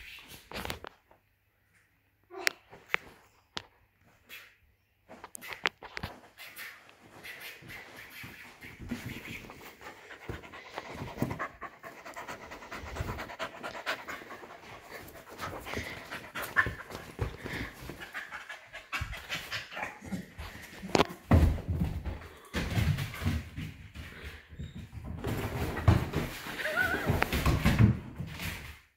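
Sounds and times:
puppy panting: 6.2s - 20.7s.

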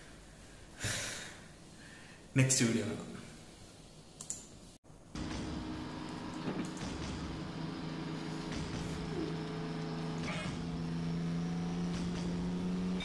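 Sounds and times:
low droning film music: 5.1s - 13.0s.

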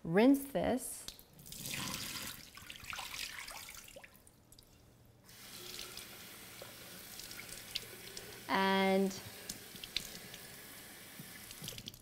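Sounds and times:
water splashing into sink: 1.4s - 4.2s.

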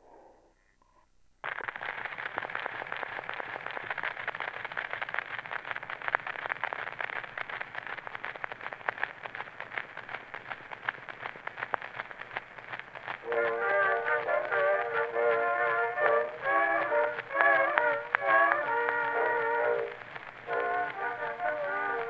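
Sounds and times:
record hiss with crackles: 0.0s - 22.0s
recorded music: 13.2s - 22.0s.

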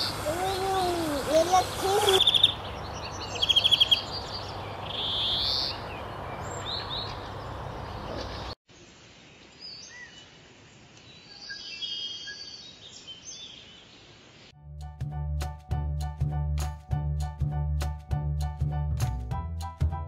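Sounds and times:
water rushing over a weir: 0.0s - 2.2s
birds chirping: 0.0s - 8.6s.

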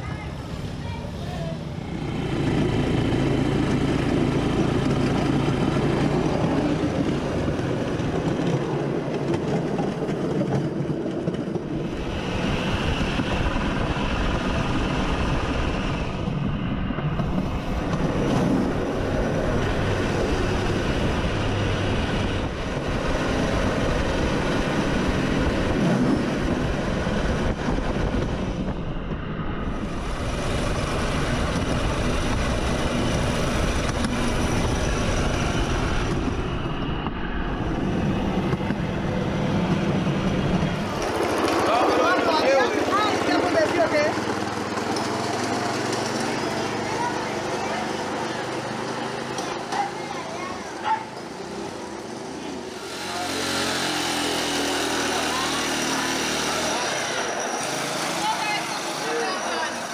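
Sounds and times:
trolley rolling on rail track: 0.0s - 59.9s
small motorcycle engine running: 38.6s - 49.4s, 50.8s - 59.9s.

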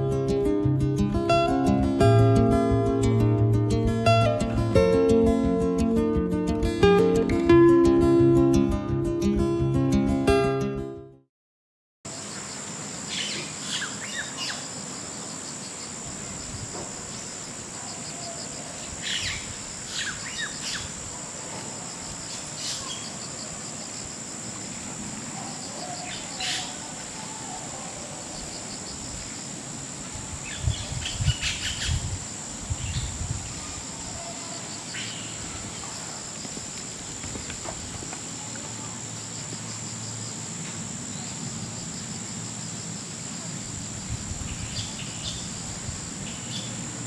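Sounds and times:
insect trill: 12.1s - 47.0s
bird chirps: 13.1s - 14.7s.

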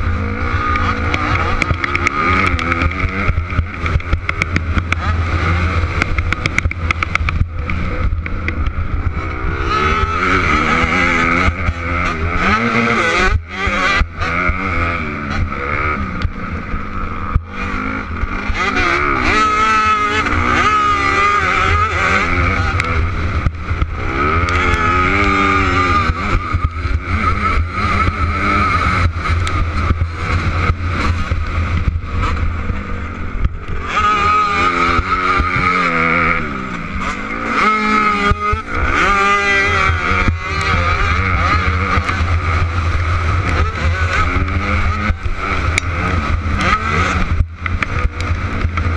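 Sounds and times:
dirt bike engine revving: 0.0s - 48.9s
wind rushing over microphone: 0.0s - 48.9s.

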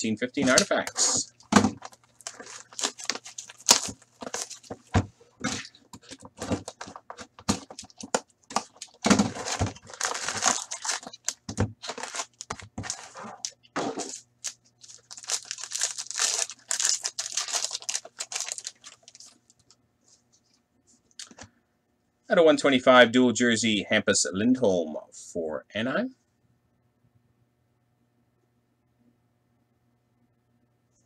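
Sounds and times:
faint low hum: 0.0s - 31.0s
foil wrappers ripping: 0.4s - 19.6s
cardboard clicks and rustles: 0.4s - 19.7s.

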